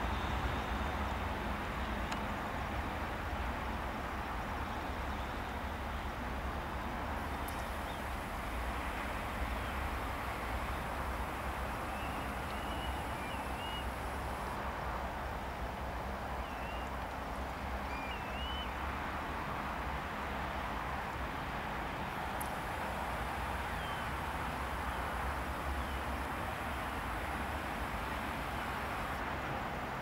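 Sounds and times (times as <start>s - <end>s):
outdoor background rumble and hiss: 0.0s - 30.0s
chirping bird calls: 11.7s - 14.0s.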